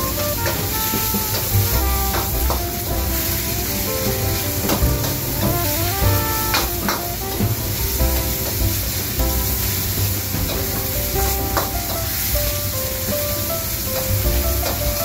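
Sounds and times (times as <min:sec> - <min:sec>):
food sizzling in a wok: 0:02.3 - 0:03.7, 0:08.4 - 0:10.8, 0:11.5 - 0:15.0.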